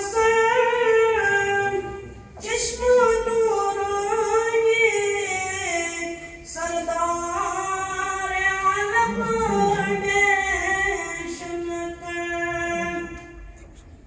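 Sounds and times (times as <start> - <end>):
child singing into microphone: 0.0 - 13.5.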